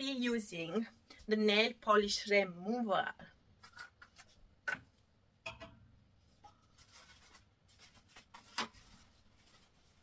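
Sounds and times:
toilet paper rustling: 6.2s - 10.0s.

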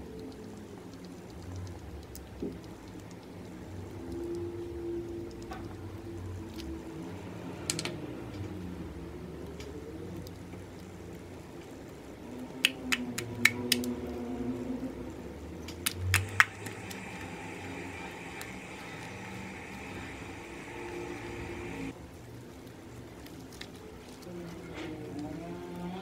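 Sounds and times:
slime clicking and popping: 15.7s - 17.0s.

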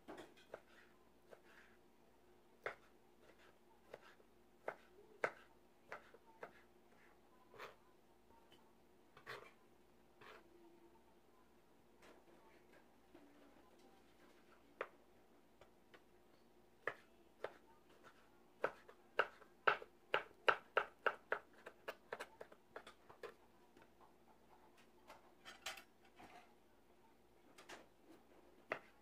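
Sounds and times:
knife chopping on plastic board: 2.6s - 6.6s, 16.8s - 23.4s, 28.7s - 29.0s.

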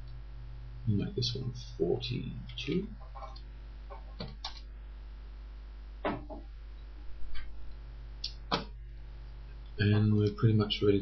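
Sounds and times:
low electrical hum: 0.0s - 11.0s
keyboard and mouse clicks: 3.1s - 4.6s.

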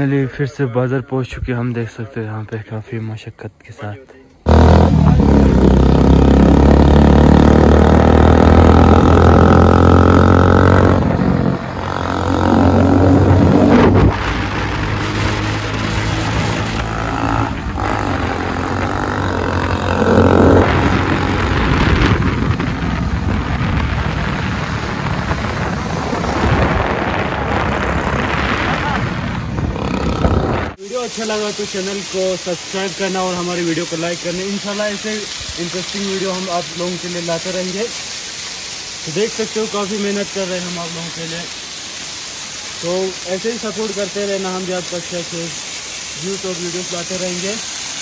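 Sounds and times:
motorcycle engine running: 4.5s - 13.7s, 16.0s - 21.8s.

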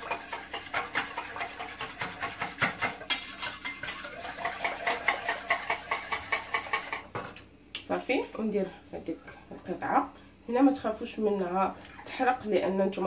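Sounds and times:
whisk clicking against saucepan: 0.0s - 7.1s.

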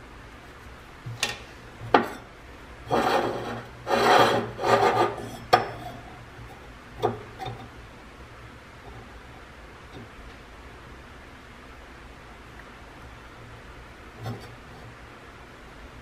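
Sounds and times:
metal scraping and rubbing: 1.8s - 7.8s.

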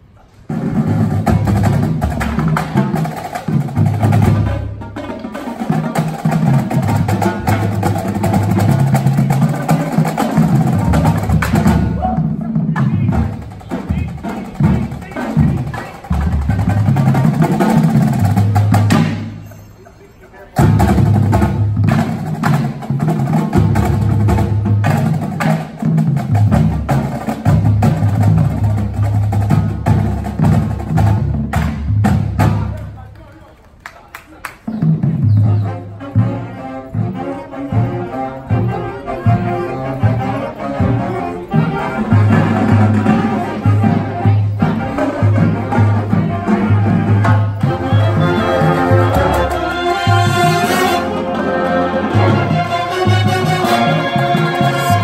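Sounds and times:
marching drumline beat: 0.5s - 19.4s, 20.6s - 33.2s, 38.5s - 55.0s
horns playing sustained chords: 35.6s - 55.0s.

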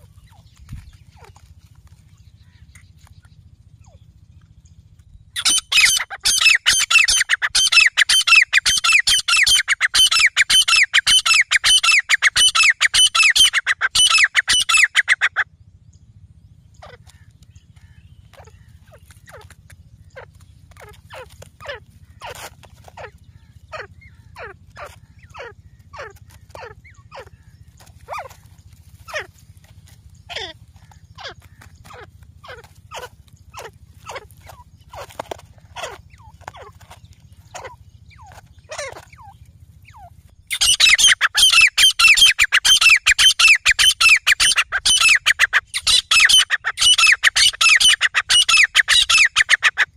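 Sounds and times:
birds calling shrilly: 0.0s - 15.6s, 16.2s - 49.9s
low steady hum: 0.0s - 49.9s.

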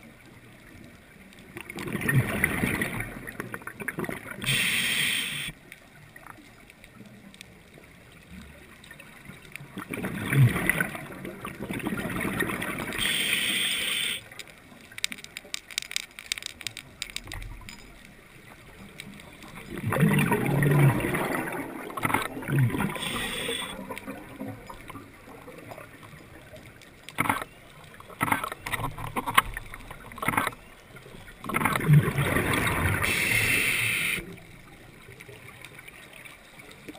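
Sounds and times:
faint clicks: 3.3s - 9.8s, 13.0s - 20.0s, 22.0s - 31.8s
regulator inhalation hiss: 4.4s - 5.6s, 13.0s - 14.3s, 22.9s - 23.8s, 33.0s - 34.2s
bubbling underwater exhalation: 19.7s - 23.9s.

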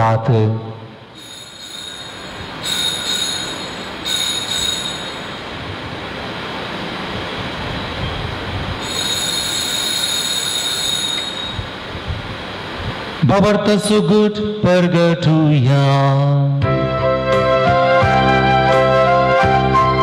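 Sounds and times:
altar bells jangling: 1.2s - 5.6s, 8.8s - 11.8s.

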